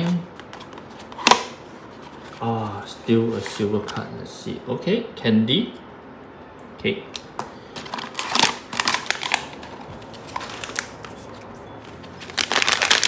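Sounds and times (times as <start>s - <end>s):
packaging rustling and clicking: 7.8s - 13.0s
plastic wrapping crinkling: 7.8s - 13.0s.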